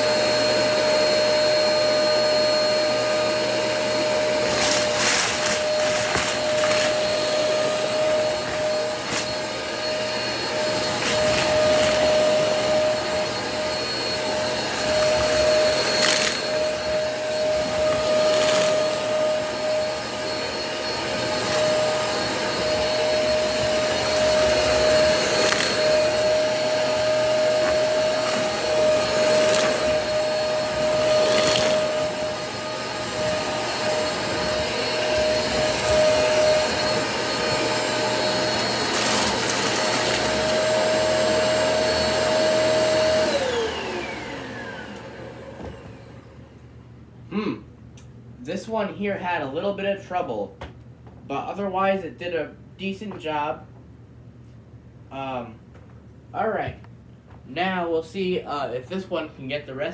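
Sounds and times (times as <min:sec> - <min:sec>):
vacuum motor winding down: 0:00.0 - 0:46.4
vacuum cleaner whining: 0:00.0 - 0:47.5.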